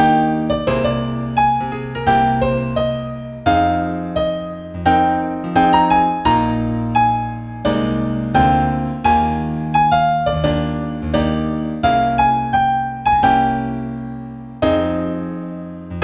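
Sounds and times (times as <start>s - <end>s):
low piano bass notes: 0.0s - 16.0s
slow piano melody: 0.0s - 16.0s.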